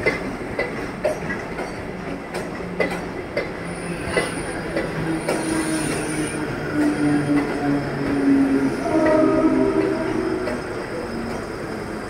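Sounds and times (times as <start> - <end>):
train wheels clacking over rail joints: 0.0 - 7.8
train rumble and low hum: 0.0 - 12.0
high squeal: 8.8 - 11.9.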